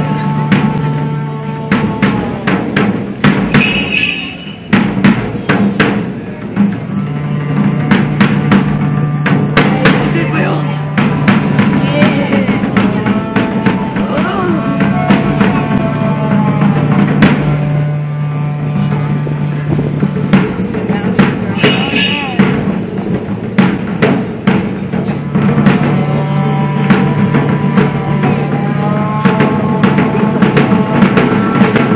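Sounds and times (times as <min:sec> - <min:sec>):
music with drum beat: 0:00.0 - 0:17.9, 0:18.6 - 0:31.9.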